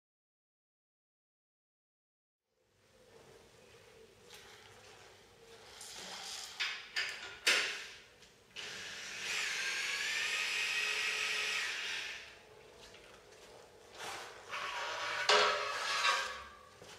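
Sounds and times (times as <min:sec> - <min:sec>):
power drill running: 0:08.6 - 0:12.4.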